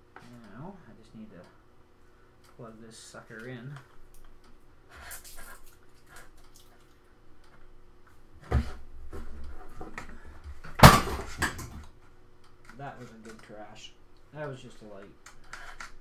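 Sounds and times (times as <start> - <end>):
lamp falling over with crash: 10.7 - 11.8.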